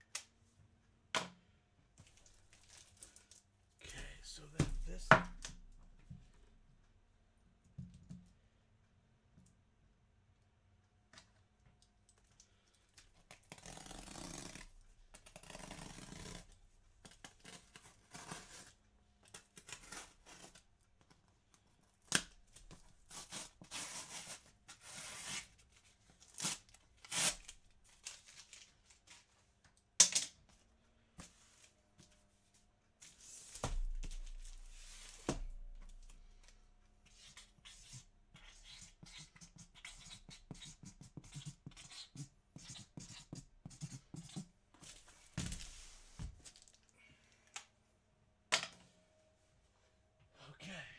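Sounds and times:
cardboard and tape ripping: 13.2s - 20.7s, 26.2s - 28.7s.

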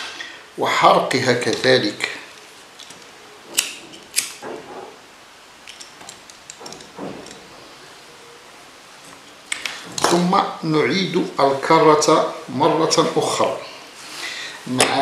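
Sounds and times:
small metal parts and cord rustling: 2.3s - 5.0s, 5.6s - 7.8s.

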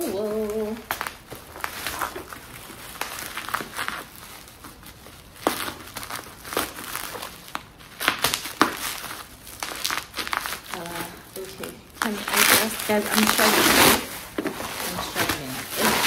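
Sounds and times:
bubble wrap crinkling: 0.0s - 16.0s
bubble wrap snaps: 0.0s - 16.0s.

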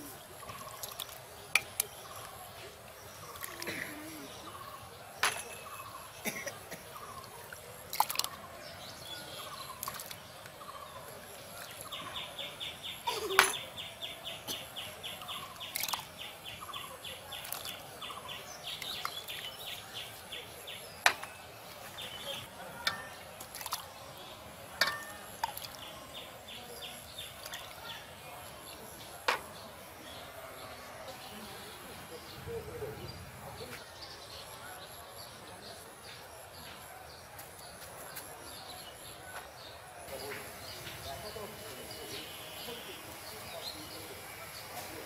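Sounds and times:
plastic ladle clinking against glass: 22.8s - 23.8s, 24.8s - 25.8s.

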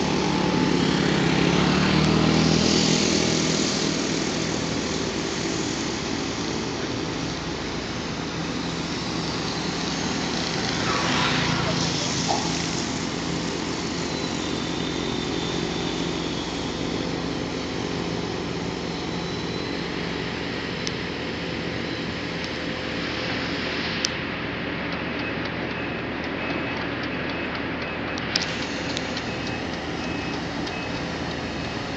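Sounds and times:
diesel engine running: 0.0s - 31.9s
sharp clicks: 24.8s - 31.9s.

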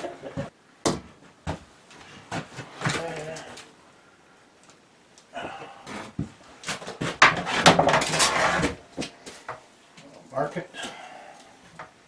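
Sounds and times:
metal rail scraping: 7.4s - 8.8s.

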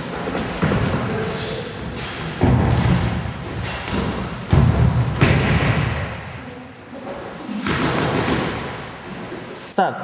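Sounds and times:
heavy thuds on gym mats: 2.3s - 6.4s.

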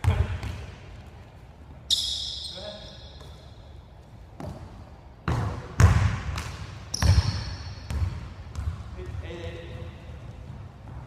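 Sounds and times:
shoe squeak: 1.9s - 3.7s, 6.9s - 7.9s
basketball bouncing on hardwood floor: 5.3s - 11.0s.

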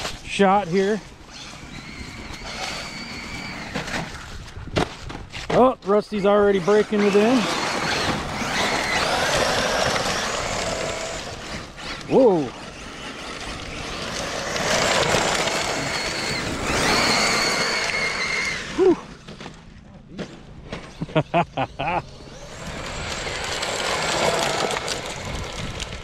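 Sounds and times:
electric motor whine: 0.0s - 4.2s, 6.4s - 19.5s, 21.6s - 26.0s
tyres rushing on gravel: 5.5s - 19.7s, 22.1s - 26.0s.

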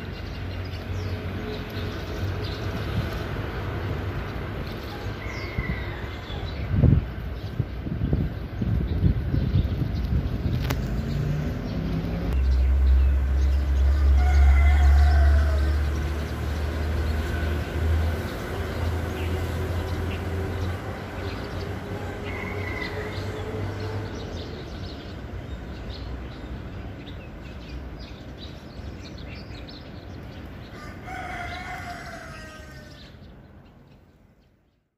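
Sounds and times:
rooster crowing: 4.9s - 6.6s, 13.8s - 16.1s, 22.1s - 23.6s, 30.7s - 33.1s
low rumble: 6.8s - 18.1s.

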